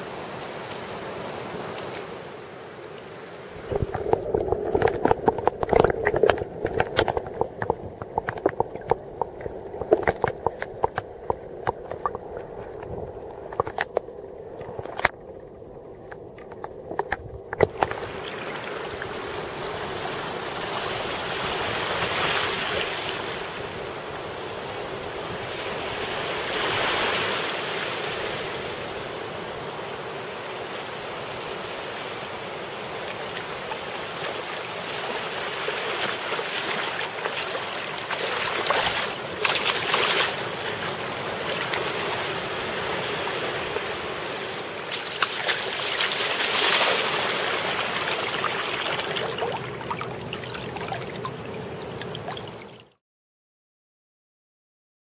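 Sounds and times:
small waves washing on sand: 0.0s - 13.9s, 17.6s - 52.9s
underwater knocks: 3.6s - 15.2s
muffled underwater sound: 3.6s - 18.1s
sharp water splashes: 33.1s - 53.0s.

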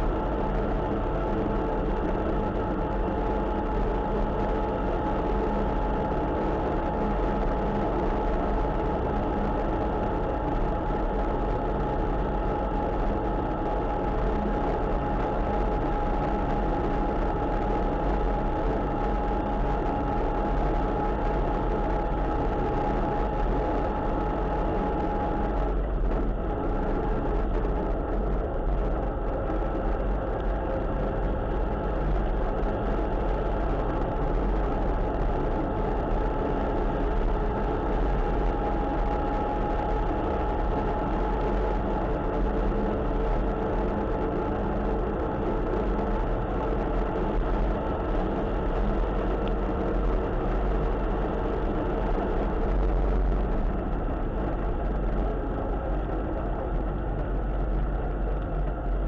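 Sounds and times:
steady whine: 0.0s - 59.0s.

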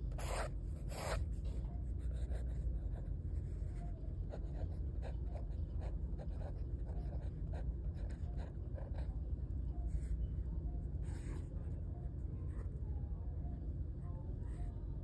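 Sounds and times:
pencil scratching on paper: 0.0s - 9.1s.

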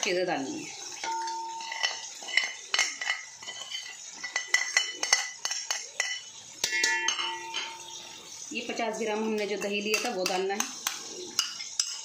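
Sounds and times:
spices tipping into metal pot: 0.9s - 8.3s, 9.4s - 12.0s
metal spoon clinking on ceramic plate: 1.0s - 8.0s, 9.9s - 12.0s.

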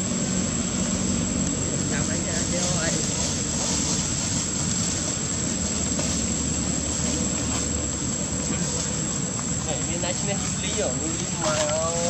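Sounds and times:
high-pitched whine: 0.0s - 12.0s
rumbling hiss: 0.0s - 12.0s.

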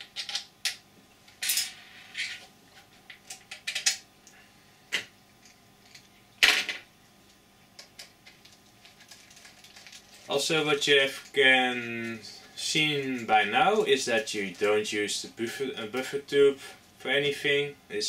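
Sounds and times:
plastic parts clicking and knocking: 0.0s - 0.8s, 3.1s - 4.0s.

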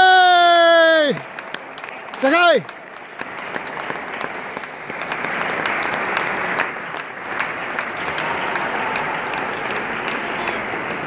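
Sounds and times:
spectators applauding: 0.0s - 11.0s.

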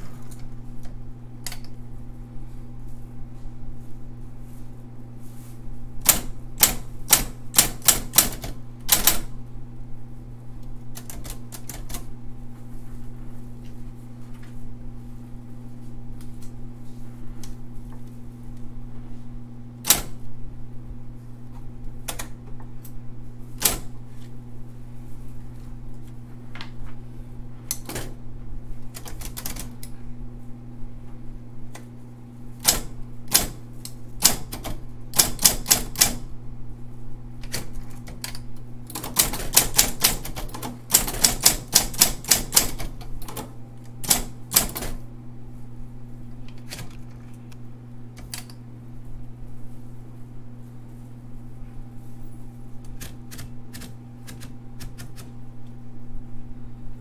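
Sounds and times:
typewriter keystrokes clicking: 6.0s - 9.3s, 10.9s - 12.1s, 19.8s - 20.2s, 22.0s - 22.4s, 23.6s - 23.9s, 27.7s - 28.2s, 28.9s - 29.9s, 32.6s - 36.3s, 37.4s - 45.0s, 46.5s - 47.1s, 48.2s - 48.6s, 52.8s - 55.3s
typewriter motor humming: 6.0s - 9.4s, 10.9s - 12.1s, 19.8s - 20.3s, 22.0s - 24.0s, 28.8s - 30.0s, 32.6s - 36.3s, 37.4s - 45.1s, 48.1s - 48.6s, 52.8s - 55.4s.

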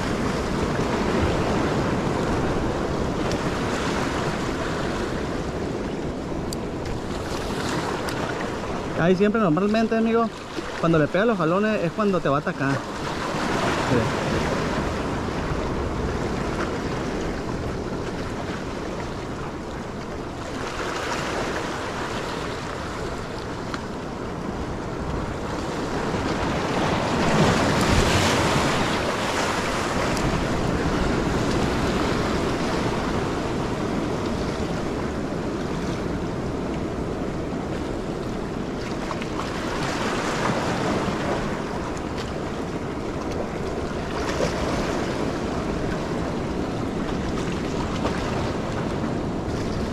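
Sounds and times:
waves splashing over rocks: 0.0s - 49.9s
wind buffeting microphone: 12.7s - 49.9s.

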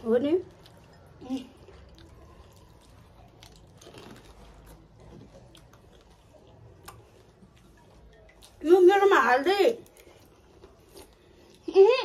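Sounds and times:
crunching crisp food: 0.5s - 7.7s.

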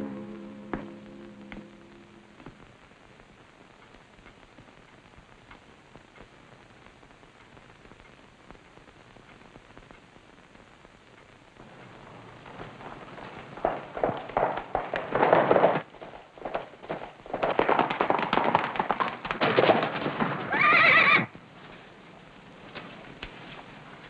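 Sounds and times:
horses hoofbeats: 11.6s - 24.0s
horse whinnying: 20.4s - 21.3s.

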